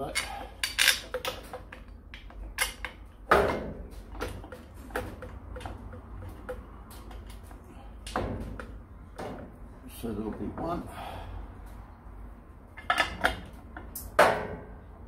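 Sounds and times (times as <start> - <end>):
small metal parts clicking: 0.0 - 3.0.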